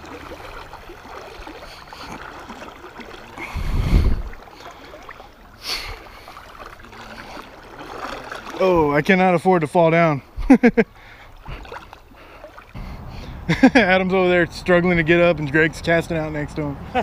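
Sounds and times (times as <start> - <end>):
low water whoosh: 0.0 - 17.0
river water swirling: 0.0 - 17.0
water hiss: 3.4 - 7.4.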